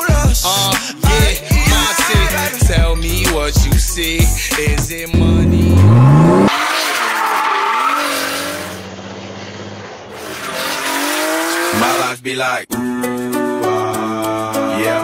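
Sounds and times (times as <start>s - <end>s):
car engine revving: 3.3s - 12.1s
tyres squealing: 5.8s - 12.1s.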